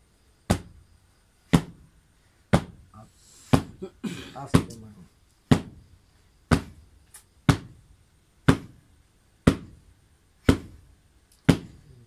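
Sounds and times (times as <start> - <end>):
hard hand slaps: 0.5 - 0.8, 1.5 - 1.8, 4.5 - 4.9, 5.5 - 5.8, 6.5 - 7.8, 8.4 - 8.8, 9.4 - 9.8, 10.4 - 10.8, 11.4 - 11.9.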